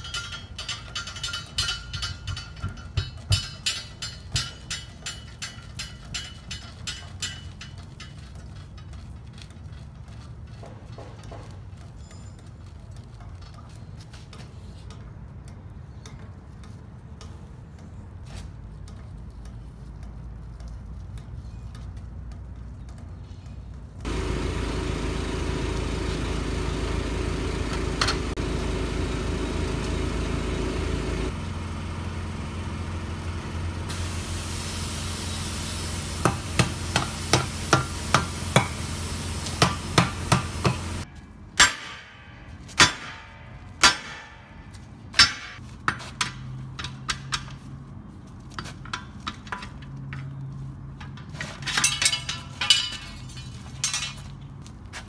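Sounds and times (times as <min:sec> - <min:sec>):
air-powered bead breaker running: 0:24.0 - 0:41.1.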